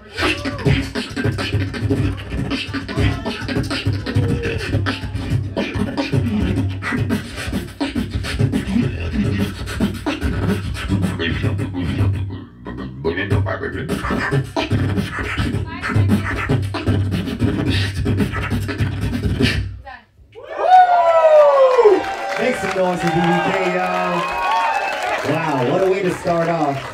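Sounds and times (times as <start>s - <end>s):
person beatboxing into a microphone: 0.0s - 20.0s.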